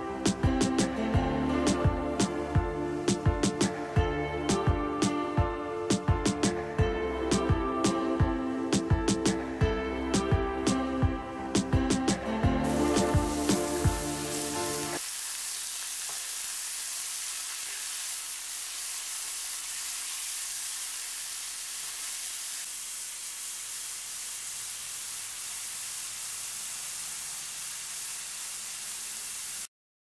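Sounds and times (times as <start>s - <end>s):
vegetables sizzling in oil: 12.6s - 29.7s.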